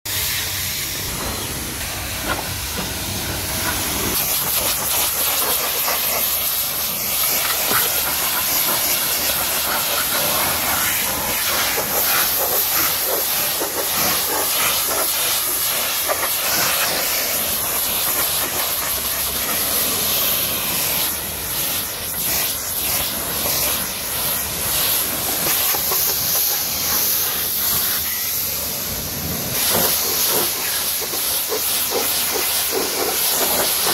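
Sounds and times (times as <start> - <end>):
pressure washer spraying: 0.1 - 33.9.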